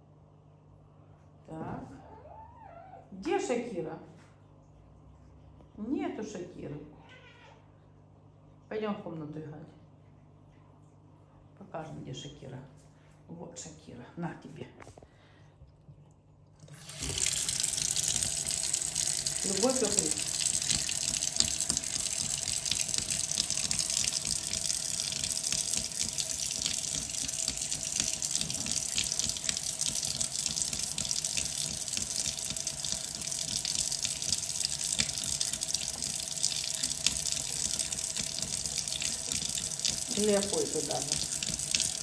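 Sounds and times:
tap running into sink: 0:16.7 - 0:42.0.

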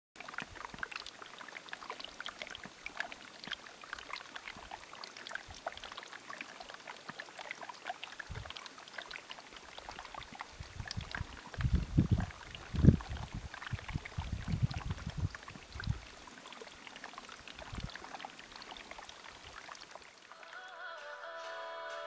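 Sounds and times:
stream running over rocks: 0:00.2 - 0:20.9.

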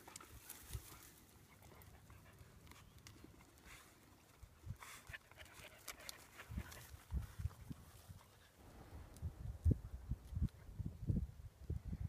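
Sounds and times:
rustling: 0:00.0 - 0:09.2.

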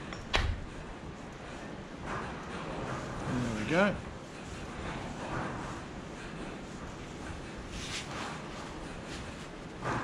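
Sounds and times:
cloth rag swishing: 0:07.0 - 0:09.6.

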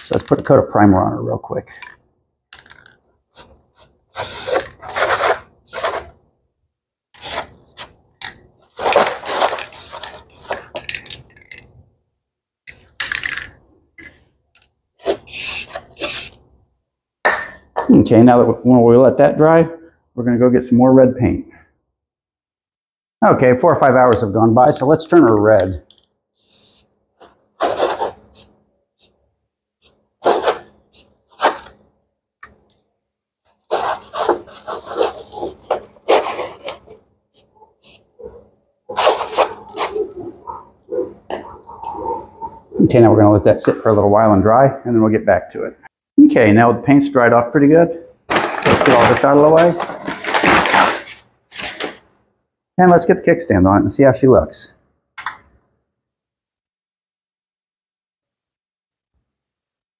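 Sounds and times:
aerosol can spraying: 0:03.4 - 0:06.0, 0:15.2 - 0:16.4, 0:26.4 - 0:26.9, 0:37.4 - 0:38.0.

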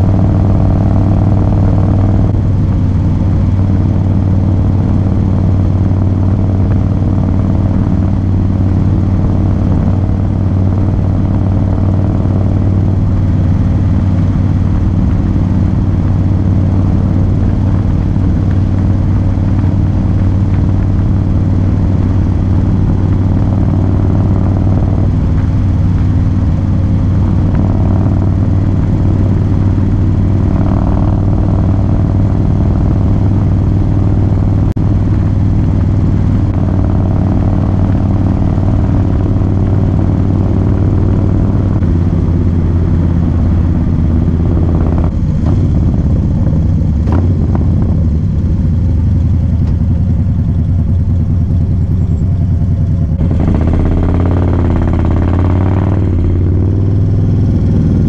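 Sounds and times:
motorcycle engine cruising: 0:00.0 - 0:58.0.

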